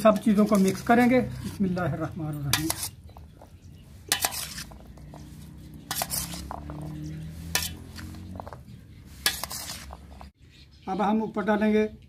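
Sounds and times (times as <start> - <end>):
spoon scraping and squelching food: 0.0 - 1.9, 2.5 - 10.4
metal spoon clinking bowl: 2.2 - 3.2.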